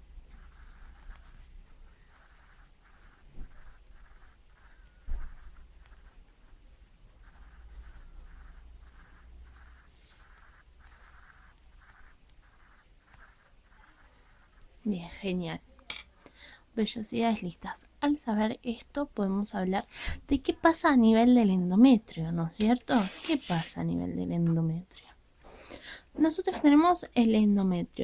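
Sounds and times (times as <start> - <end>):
pencil scratching on paper: 0.3 - 14.8, 22.9 - 23.8.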